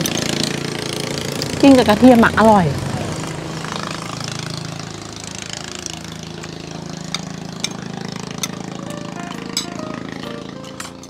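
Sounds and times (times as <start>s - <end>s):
motor droning: 0.0s - 11.0s.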